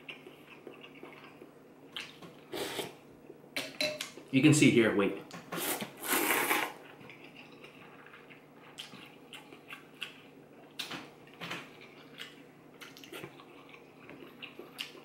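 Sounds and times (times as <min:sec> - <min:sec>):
mouth sounds eating noodles: 0:02.0 - 0:03.0, 0:05.6 - 0:06.8.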